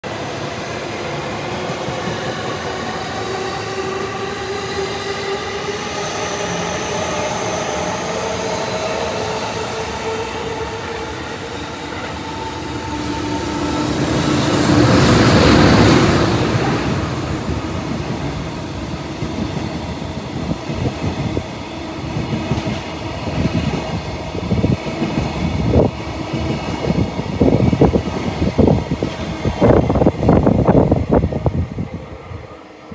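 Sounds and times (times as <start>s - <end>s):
electric locomotive passing: 0.0s - 32.9s
locomotive whining hum: 2.8s - 24.8s.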